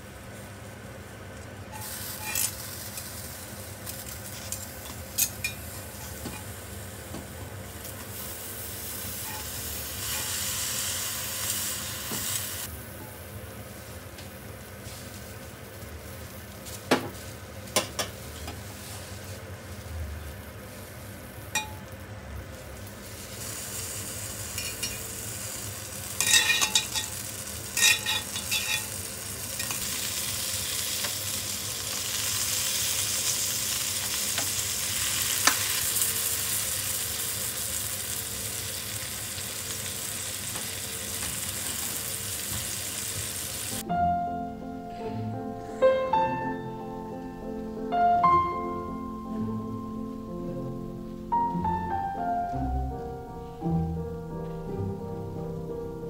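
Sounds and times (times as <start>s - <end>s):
eggplants sizzling in a pot: 0.0s - 44.8s
utensils scraping a pan: 1.7s - 2.6s, 9.2s - 10.4s, 26.2s - 27.1s, 27.8s - 29.0s.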